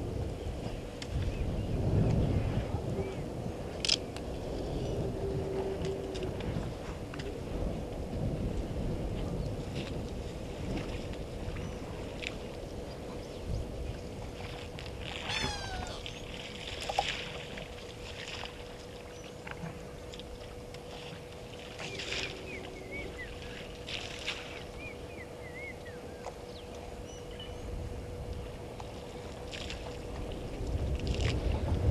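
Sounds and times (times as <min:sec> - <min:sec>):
faint steady hum: 0:00.0 - 0:31.9
wind rumbling on microphone: 0:00.0 - 0:31.9
birds chirping: 0:24.7 - 0:27.7.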